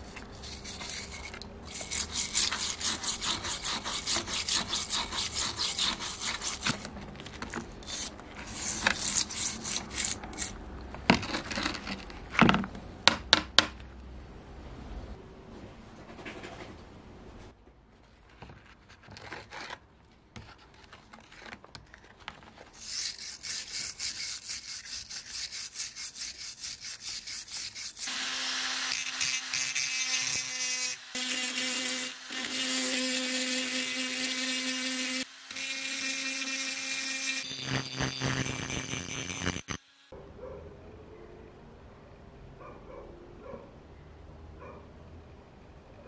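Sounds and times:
rotary tool grinding rust: 0.0s - 6.9s, 7.8s - 10.6s, 22.8s - 39.8s.

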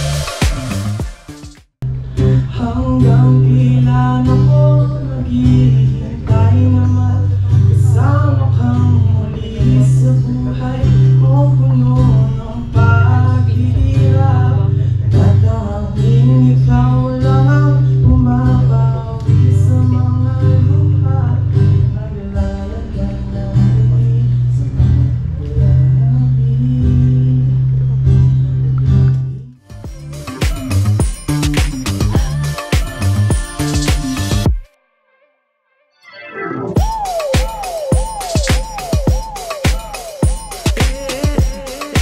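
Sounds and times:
acoustic guitar: 0.0s - 34.7s
bass line: 0.0s - 34.7s, 36.7s - 42.0s
person singing: 2.2s - 27.6s, 29.6s - 34.5s, 36.1s - 42.0s.

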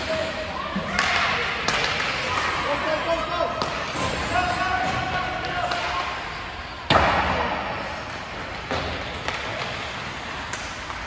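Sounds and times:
loud bang echoing in rink: 6.8s - 8.0s.

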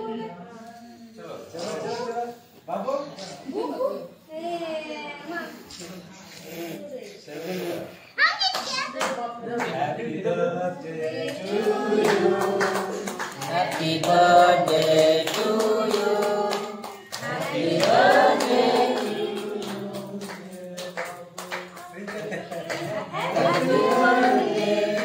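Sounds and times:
people singing together: 9.0s - 25.0s
hand clapping: 12.0s - 24.5s.

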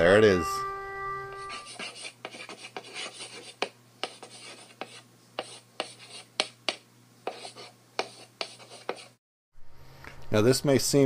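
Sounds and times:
chalk scratching on blackboard: 1.3s - 9.2s.

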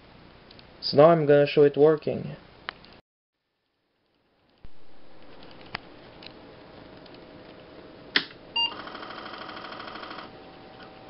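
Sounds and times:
computer startup beep: 8.6s - 10.8s
floppy disk drive chatter: 8.8s - 11.0s.

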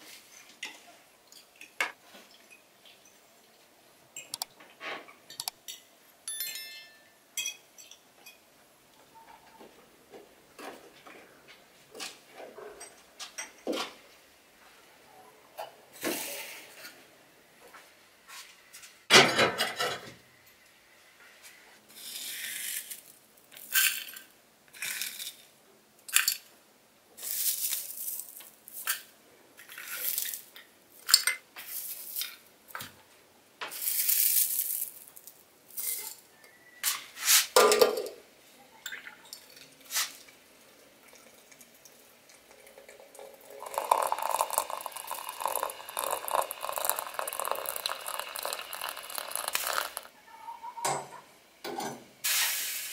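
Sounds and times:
rustles and clinks of spooning tea: 5.3s - 8.5s, 42.5s - 50.1s
water pouring into infuser: 41.0s - 50.1s.

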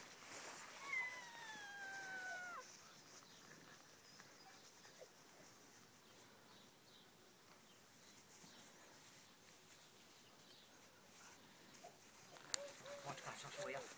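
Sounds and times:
puppy whining: 0.7s - 2.7s.

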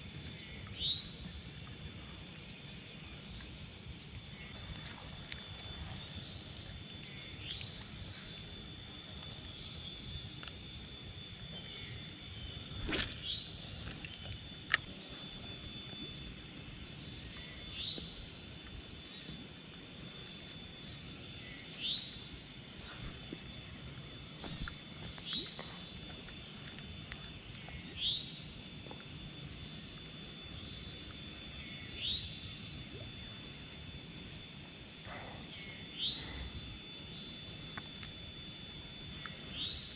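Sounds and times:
low background hum: 0.0s - 39.9s.

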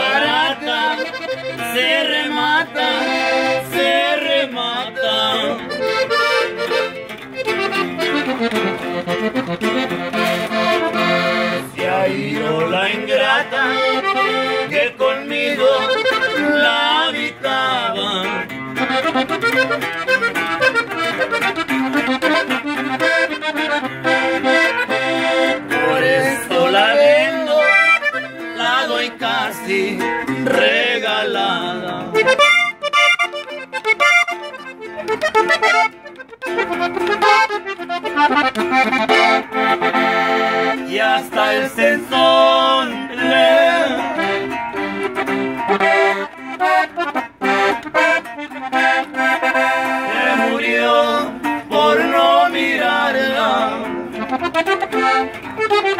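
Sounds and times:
strummed guitar chords and bass runs: 0.0s - 51.8s, 53.4s - 55.9s
accordion melody: 0.0s - 55.9s.

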